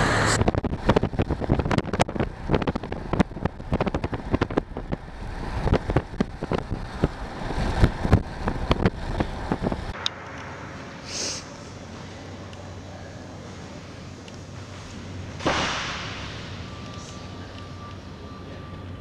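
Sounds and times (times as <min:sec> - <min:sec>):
low road rumble: 0:00.0 - 0:19.0
wind buffeting microphone: 0:00.3 - 0:10.0.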